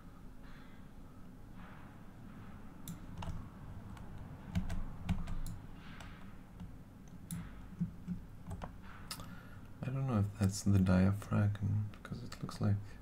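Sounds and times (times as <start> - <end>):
keyboard and mouse clicks: 2.8 - 9.3.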